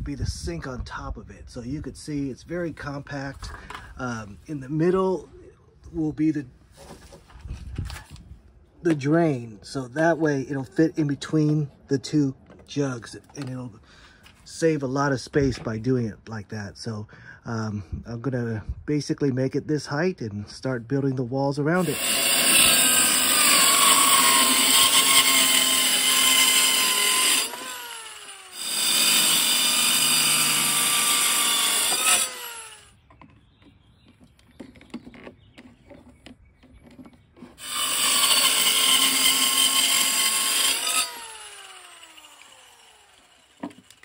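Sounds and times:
electric saw cutting wood: 0:21.8 - 0:33.0, 0:37.6 - 0:44.0.

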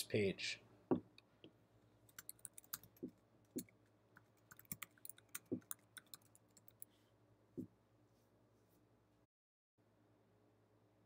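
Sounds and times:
typing on computer keyboard: 0:02.1 - 0:06.8.

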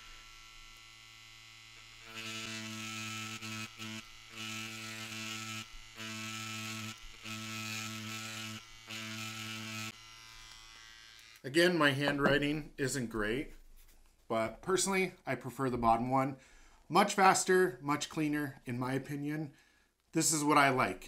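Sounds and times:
tattoo machine buzzing: 0:00.0 - 0:11.5.

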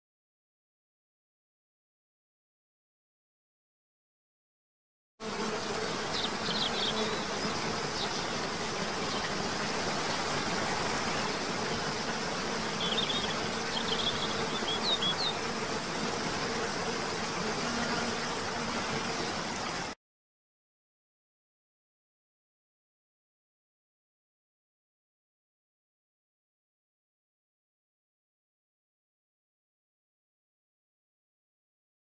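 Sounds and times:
low insect buzz: 0:05.2 - 0:20.0.

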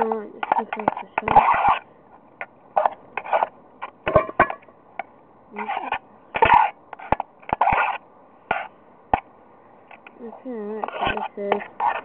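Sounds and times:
metal utensil scraping metal cup: 0:10.8 - 0:12.0.

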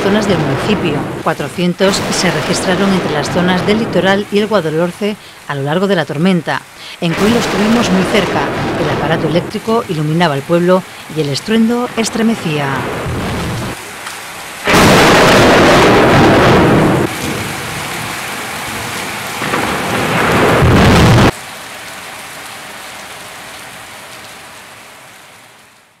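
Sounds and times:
thunder rumbling: 0:00.0 - 0:05.3, 0:07.0 - 0:13.8, 0:14.6 - 0:21.4
pouring rain: 0:00.0 - 0:26.0.

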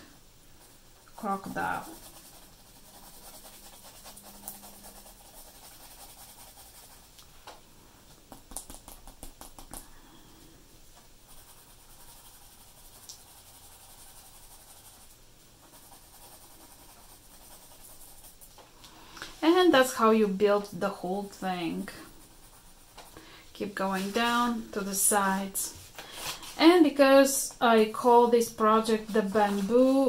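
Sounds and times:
pencil scratching on paper: 0:01.2 - 0:07.1, 0:11.3 - 0:15.1, 0:15.7 - 0:18.4, 0:21.2 - 0:23.0.

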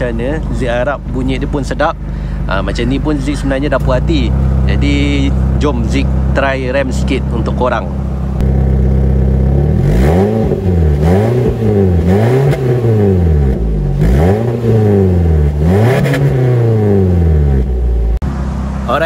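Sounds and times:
car engine idling and revving: 0:00.0 - 0:19.0.

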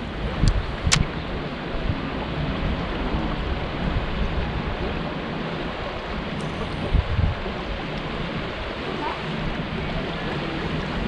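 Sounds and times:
steady rushing noise: 0:00.0 - 0:11.0
wind buffeting microphone: 0:00.0 - 0:11.0.

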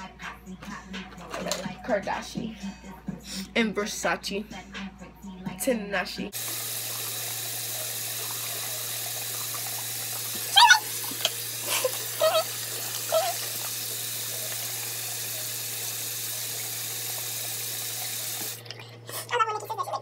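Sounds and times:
tap water running into sink: 0:06.4 - 0:19.1
face washing with washcloth: 0:06.4 - 0:20.0.

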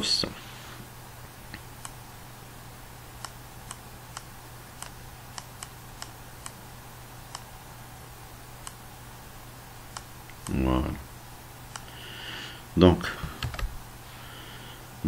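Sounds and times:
steady low hum: 0:00.0 - 0:15.0
input device clicks: 0:03.2 - 0:06.6, 0:09.9 - 0:10.6.

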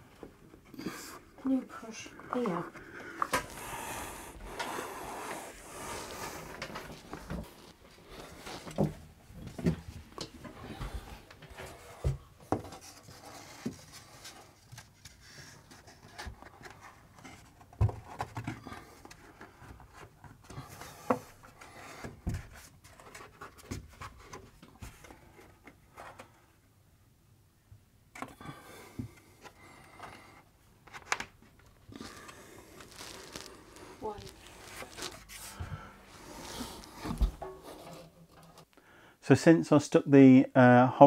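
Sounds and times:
man breathing: 0:02.8 - 0:08.8, 0:28.4 - 0:30.5, 0:31.9 - 0:34.0, 0:35.0 - 0:37.4, 0:38.7 - 0:39.2.

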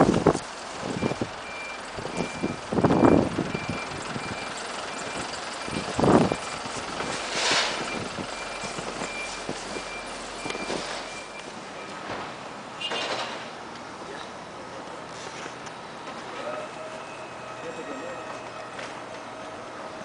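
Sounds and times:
reversing alarm beeping: 0:00.9 - 0:12.1, 0:16.4 - 0:19.7.

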